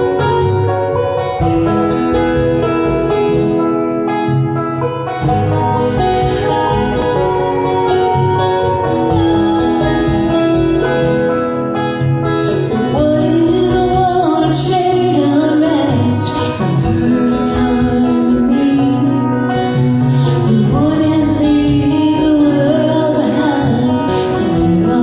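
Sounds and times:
plucked acoustic guitar: 0.0s - 25.0s
people singing: 5.9s - 11.2s.

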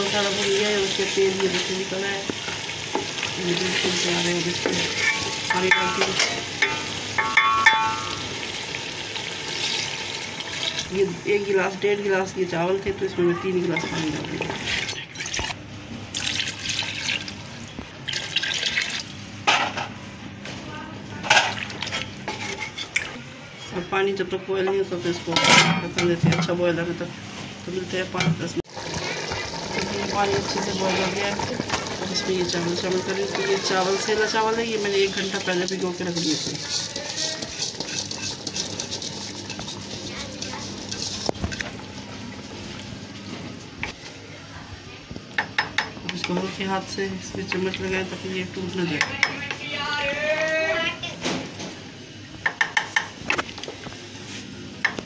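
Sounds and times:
water splashing into a pot: 6.6s - 10.9s, 14.2s - 19.1s, 28.6s - 42.8s.

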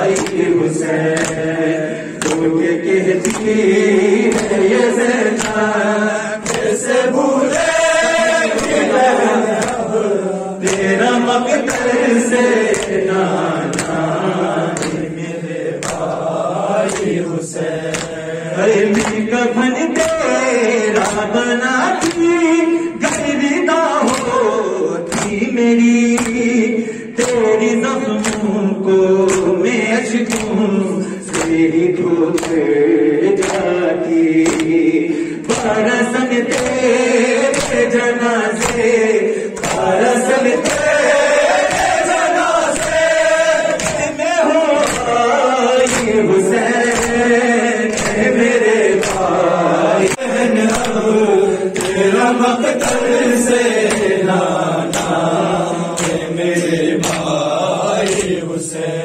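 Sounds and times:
hands slapping chests: 0.0s - 19.3s, 19.9s - 24.4s, 25.0s - 25.5s, 26.1s - 26.6s, 27.2s - 27.5s, 28.1s - 28.6s, 29.2s - 29.6s, 30.2s - 58.5s
group of men singing along: 0.0s - 59.0s
man chanting over a microphone: 0.0s - 59.0s.

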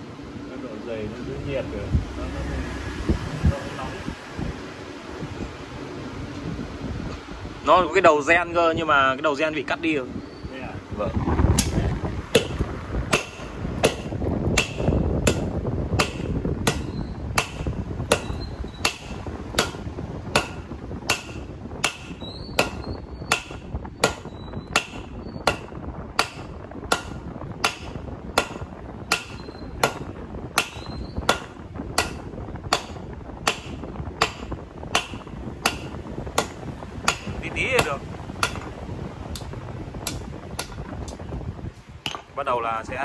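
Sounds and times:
hammer striking hot steel on anvil: 11.6s - 38.7s, 39.3s - 41.2s, 42.0s - 42.3s.

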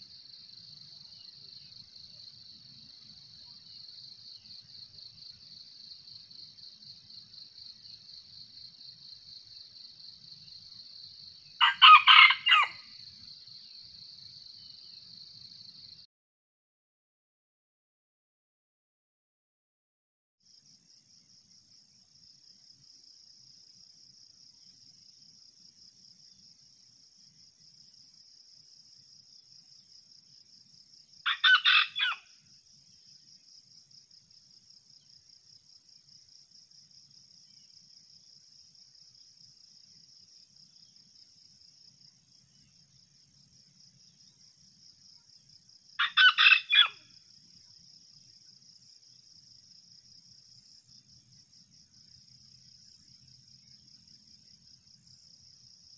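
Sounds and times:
rooster crowing: 11.6s - 12.9s, 31.3s - 32.2s, 46.0s - 47.0s.

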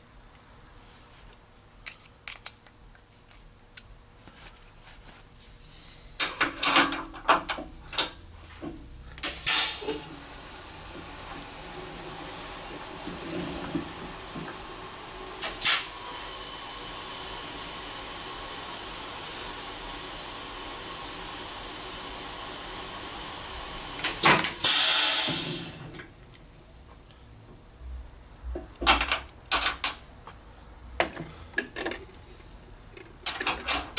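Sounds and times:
machine spindle hiss: 9.2s - 10.8s, 14.1s - 25.8s.

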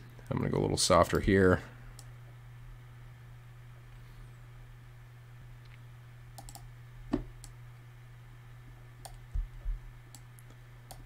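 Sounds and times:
steady low hum: 0.0s - 11.0s
mouse and keyboard clicks: 6.4s - 6.6s.

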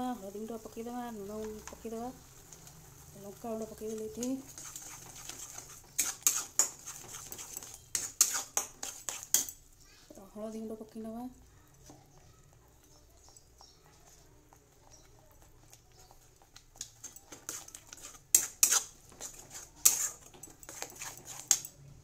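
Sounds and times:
steel spatula scraping metal pot: 3.6s - 9.6s, 16.7s - 21.8s.

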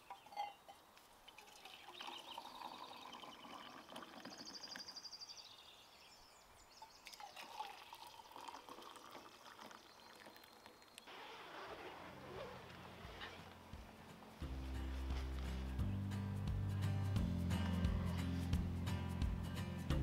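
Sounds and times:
coffee pouring into mugs: 1.3s - 4.9s, 7.0s - 10.9s.

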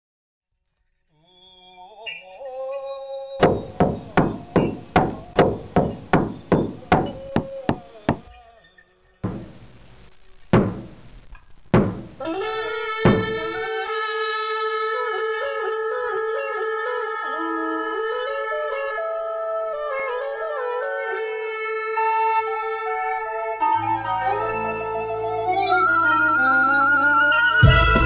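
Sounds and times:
hammer striking metal on anvil: 3.4s - 8.3s
musical tones: 12.2s - 13.9s, 23.6s - 28.0s.

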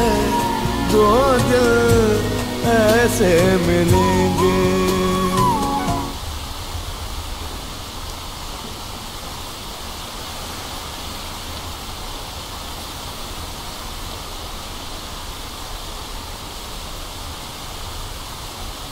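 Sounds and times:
steady rain hiss: 0.0s - 18.9s.

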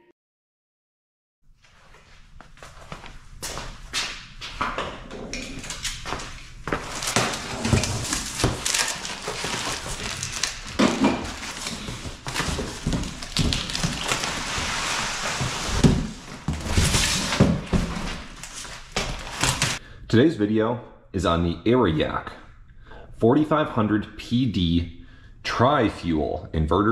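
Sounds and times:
footsteps: 1.6s - 19.8s
cardboard flaps rustling and scraping: 5.7s - 19.8s
carton thumps: 6.7s - 19.8s.

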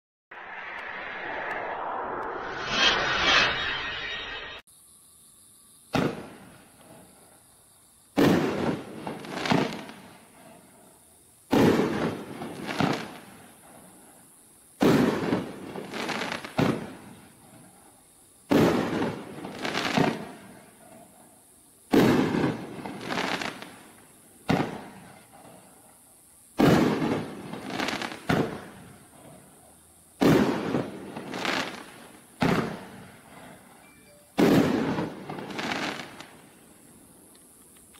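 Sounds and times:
fireworks bangs with rumble: 8.2s - 9.9s, 26.6s - 28.8s, 32.4s - 33.1s.

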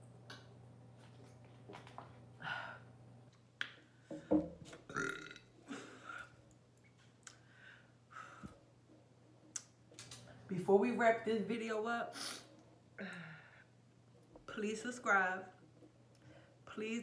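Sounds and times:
woman burping: 4.9s - 6.3s.

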